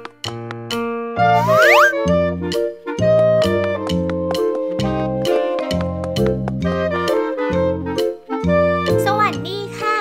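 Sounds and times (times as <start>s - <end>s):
upbeat music with bouncing bass: 1.2s - 2.2s.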